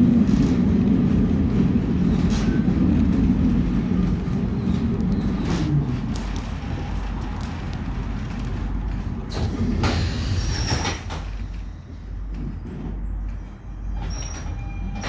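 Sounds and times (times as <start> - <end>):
tram knocks and clatters: 0.0 - 15.0
tram rumbling on rails: 0.0 - 15.0
wheel squeal: 13.0 - 15.0.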